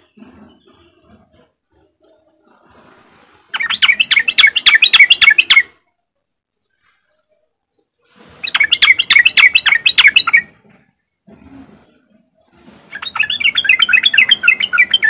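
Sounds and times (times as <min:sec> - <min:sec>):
bird calling rising notes: 0:03.5 - 0:05.8, 0:08.4 - 0:10.5, 0:12.9 - 0:15.0.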